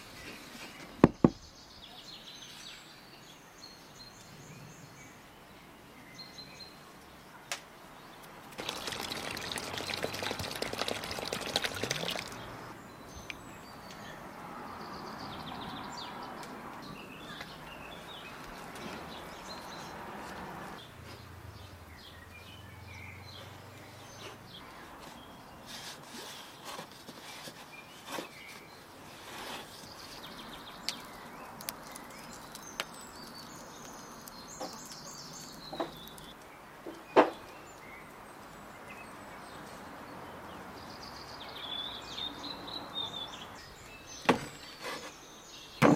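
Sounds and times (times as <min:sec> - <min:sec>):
birds chirping: 0:00.1 - 0:26.6, 0:27.7 - 0:45.9
water splashing into flour: 0:08.6 - 0:12.5.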